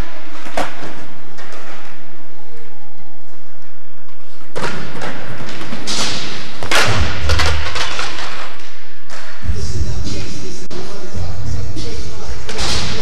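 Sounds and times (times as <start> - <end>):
skateboard hitting the floor: 0.0 - 2.0, 4.4 - 9.4
low rumble: 6.7 - 13.0.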